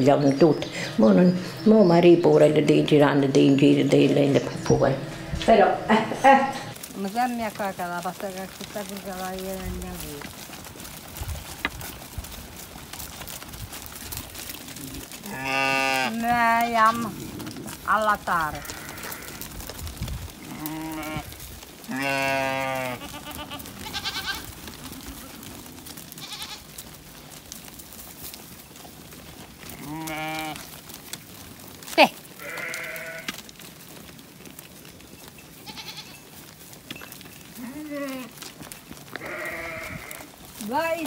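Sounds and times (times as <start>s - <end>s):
sheep and goats bleating: 13.9s - 27.0s, 27.6s - 41.0s.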